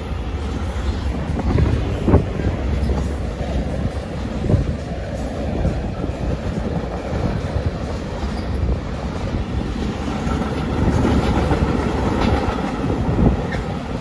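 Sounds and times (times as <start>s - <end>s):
freight train wheels rumbling: 0.0s - 14.0s.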